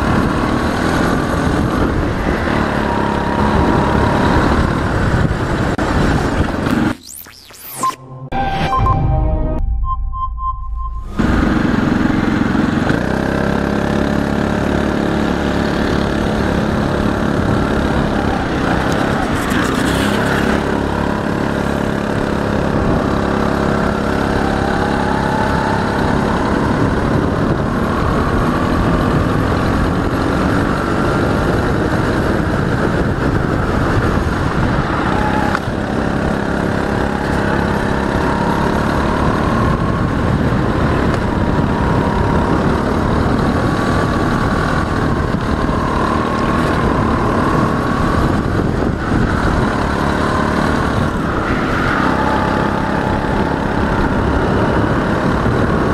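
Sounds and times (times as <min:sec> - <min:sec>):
go-kart engine revving: 0:00.0 - 0:06.9, 0:11.2 - 0:55.9
rush of noise: 0:00.0 - 0:13.4, 0:15.6 - 0:55.9.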